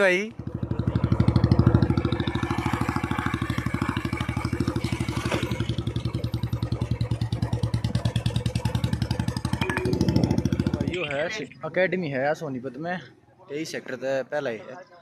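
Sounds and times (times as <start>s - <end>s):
motorcycle engine running: 0.3s - 11.0s.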